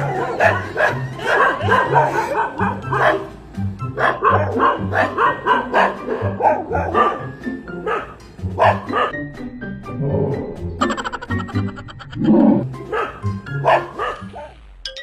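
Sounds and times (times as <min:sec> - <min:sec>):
dogs barking: 0:00.0 - 0:09.2, 0:12.1 - 0:14.6
background music: 0:00.0 - 0:15.0.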